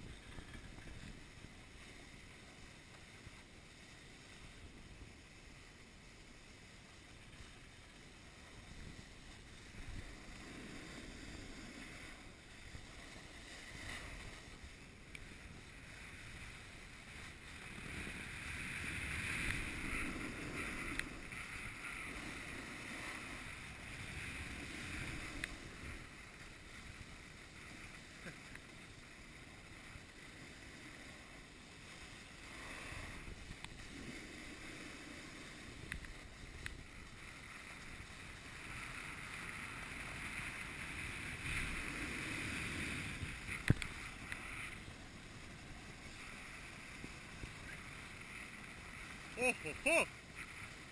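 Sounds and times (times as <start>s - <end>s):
skis scraping on snow: 0.0s - 50.9s
wind noise on microphone: 32.4s - 49.3s.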